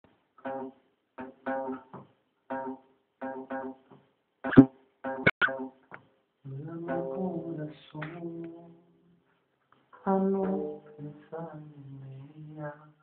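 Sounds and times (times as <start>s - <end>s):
guitar clipped chords: 4.5s - 5.7s.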